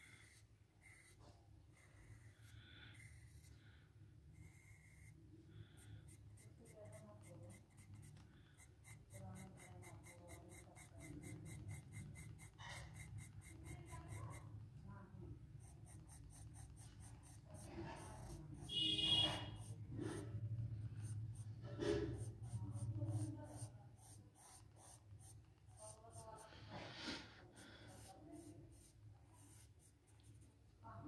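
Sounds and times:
pencil scratching on paper: 0:00.0 - 0:14.6, 0:15.5 - 0:31.0.

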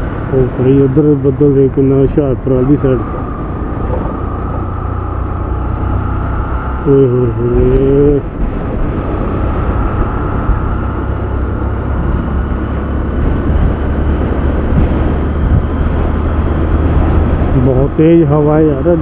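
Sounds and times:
motorcycle engine running: 0:00.0 - 0:19.0
wind buffeting microphone: 0:00.0 - 0:19.0.

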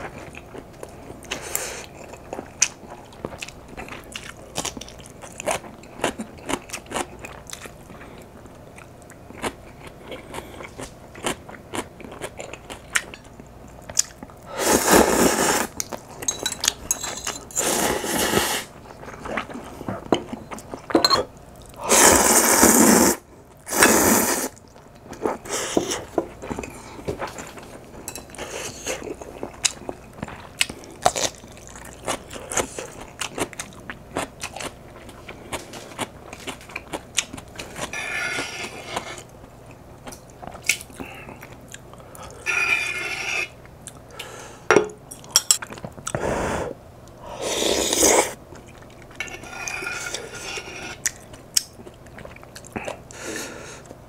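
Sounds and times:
chewing: 0:00.0 - 0:14.4, 0:48.5 - 0:53.2
slurping noodles: 0:14.5 - 0:15.8, 0:17.6 - 0:18.7, 0:21.8 - 0:24.6, 0:47.4 - 0:48.4.

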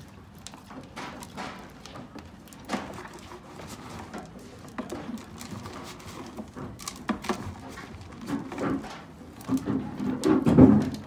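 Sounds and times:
knocks on plastic bucket: 0:09.6 - 0:11.0.

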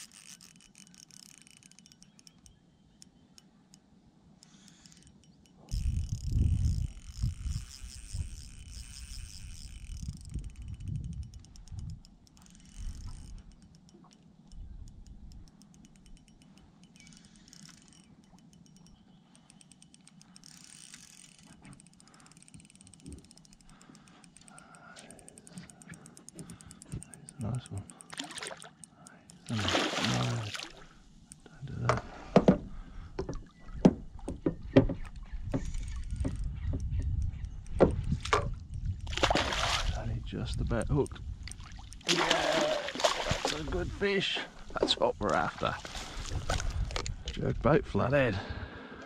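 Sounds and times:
fishing reel ticking: 0:00.0 - 0:29.6, 0:35.6 - 0:39.1
low rumble of water and wind: 0:00.0 - 0:49.0
wind rumbling on microphone: 0:05.7 - 0:13.6, 0:31.6 - 0:42.1, 0:43.0 - 0:48.7
fish splashing at water surface: 0:29.5 - 0:30.8, 0:39.1 - 0:40.0, 0:42.0 - 0:43.6.

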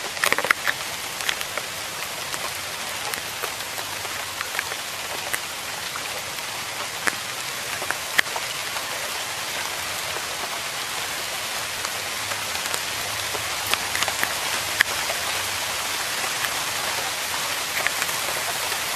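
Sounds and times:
rain falling on foliage: 0:00.0 - 0:18.9.

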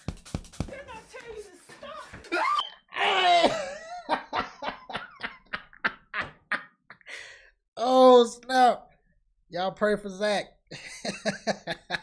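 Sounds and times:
man laughing: 0:02.3 - 0:07.1, 0:10.7 - 0:12.0.

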